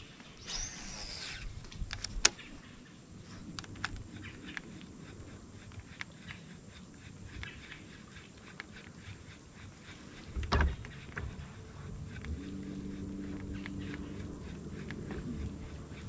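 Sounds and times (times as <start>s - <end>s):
electric motor humming: 0.4s - 2.4s, 3.4s - 16.0s
faint clicks: 1.4s - 16.0s
dull thump: 10.3s - 11.6s.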